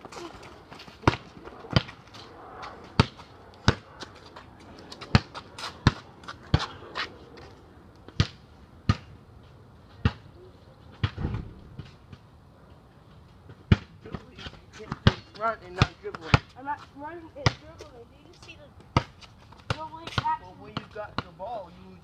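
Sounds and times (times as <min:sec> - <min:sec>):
basketball bouncing on court: 0:03.0 - 0:03.9
heavier dull thud: 0:11.1 - 0:11.8.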